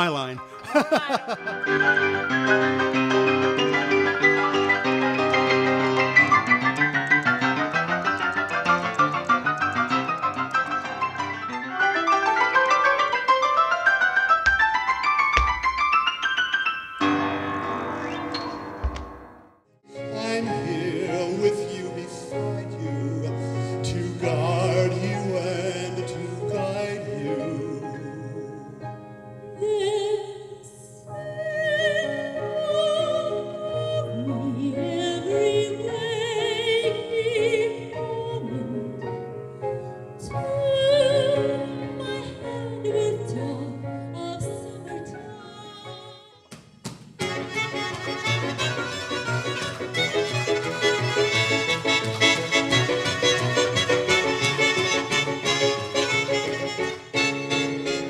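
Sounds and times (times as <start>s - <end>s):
grand piano: 0.0s - 58.0s
man singing opera: 19.9s - 29.0s
woman singing soprano: 29.5s - 39.0s, 40.2s - 46.4s.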